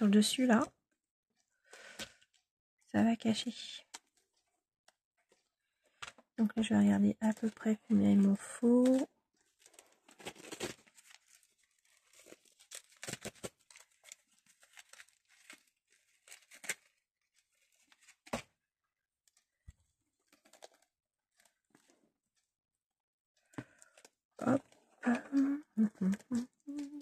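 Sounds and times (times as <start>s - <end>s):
ribbon rustling and scraping: 8.2s - 18.4s.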